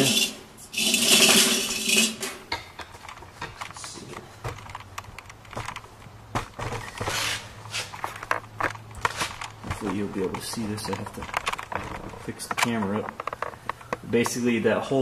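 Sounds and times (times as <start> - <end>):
metal scraping on concrete: 0.0 - 2.5.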